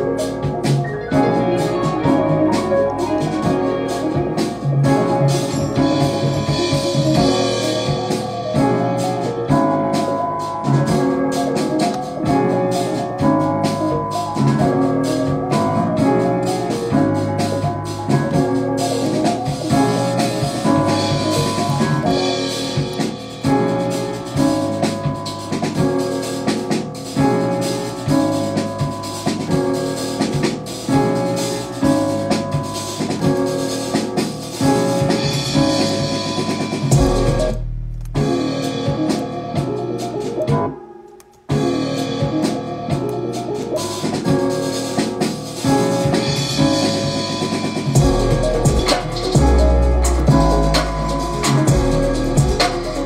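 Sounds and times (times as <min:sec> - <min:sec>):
deep bass: 0:00.0 - 0:11.4, 0:12.3 - 0:25.9, 0:34.9 - 0:39.0, 0:47.9 - 0:53.0
drums: 0:00.0 - 0:53.0
looping melody: 0:00.0 - 0:53.0.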